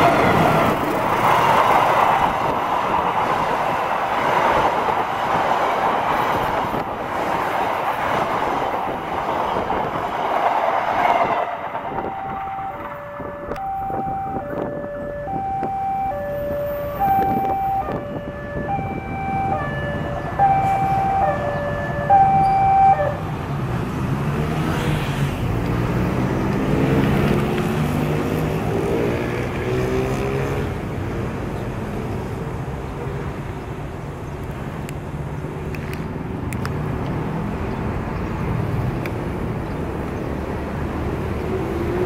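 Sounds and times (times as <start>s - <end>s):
engines accelerating: 0.0s - 32.1s.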